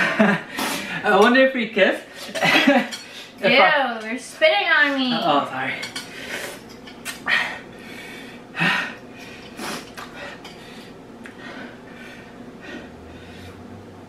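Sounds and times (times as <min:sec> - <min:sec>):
noisy breaths and slurps: 0:06.0 - 0:13.8.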